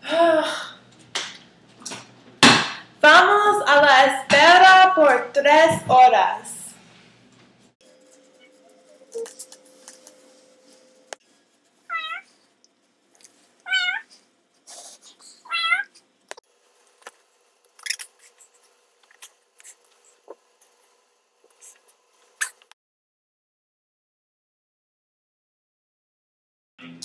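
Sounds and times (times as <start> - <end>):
cat meowing: 11.9 - 12.3, 13.6 - 14.1, 15.4 - 15.9.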